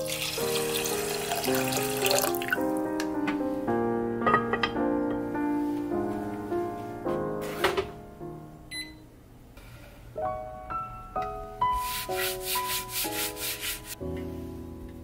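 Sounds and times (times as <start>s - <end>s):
soft piano music: 0.0s - 9.5s, 10.1s - 15.0s
hand rubbing wooden cutting board: 11.8s - 14.0s.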